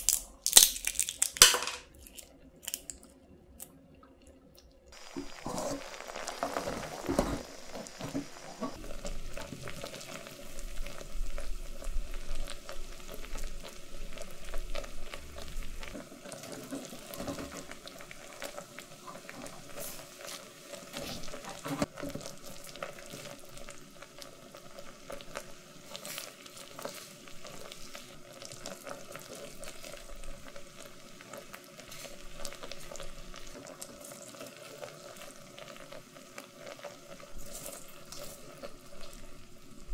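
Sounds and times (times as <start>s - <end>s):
syrup boiling and popping: 0.0s - 39.9s.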